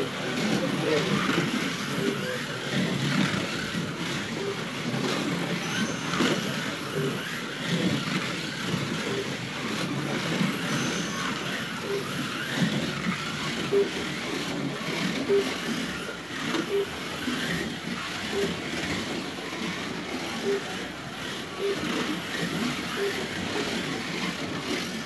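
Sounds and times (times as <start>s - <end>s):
slot car motors whining: 0.0s - 25.0s
short beeps: 5.6s - 6.2s.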